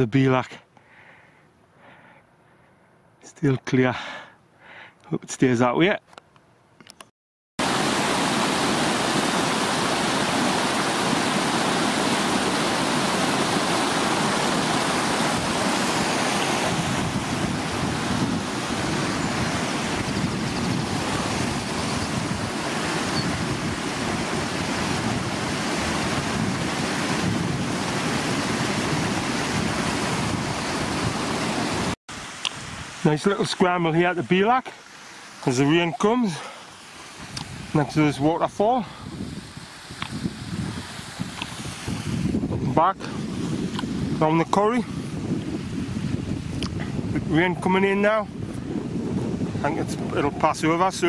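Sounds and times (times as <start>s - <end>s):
wind blowing across microphone: 7.6s - 34.6s, 35.3s - 51.0s.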